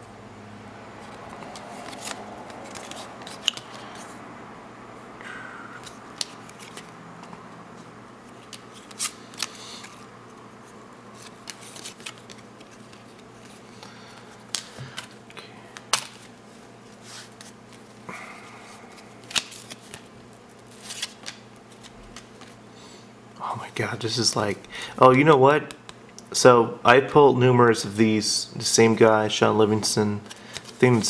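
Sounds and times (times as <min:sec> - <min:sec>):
cards sliding and flicking: 0:01.0 - 0:04.2, 0:05.8 - 0:07.4, 0:08.4 - 0:10.1, 0:11.1 - 0:15.2, 0:15.8 - 0:17.8, 0:18.9 - 0:22.6, 0:30.2 - 0:31.0.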